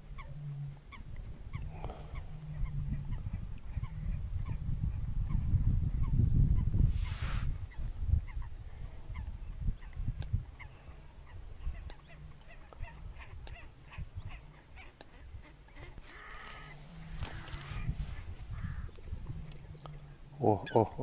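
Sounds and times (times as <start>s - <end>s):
lower multi-tone bird call: 11.7s - 18.9s.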